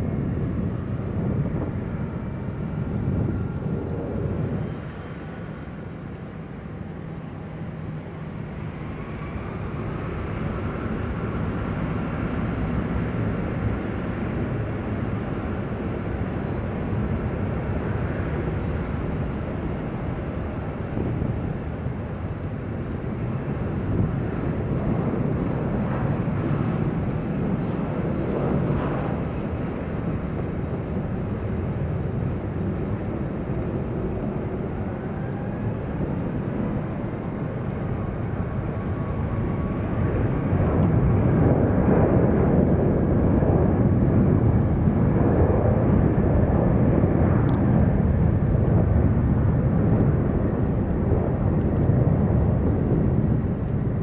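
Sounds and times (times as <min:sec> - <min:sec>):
airliner low rumble: 0:00.0 - 0:54.0
jet engines rising whine: 0:00.0 - 0:54.0.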